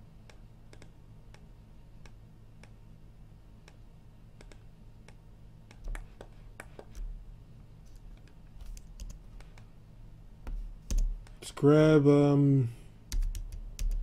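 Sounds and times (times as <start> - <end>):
low steady hum: 0.0 - 14.0
computer mouse and keyboard clicks: 4.4 - 7.1, 7.9 - 9.7.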